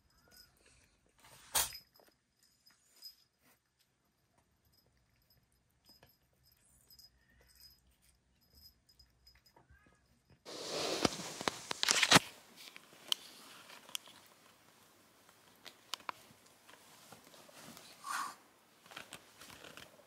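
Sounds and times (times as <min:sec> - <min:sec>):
duvet rustling and crinkling: 0:10.5 - 0:20.0.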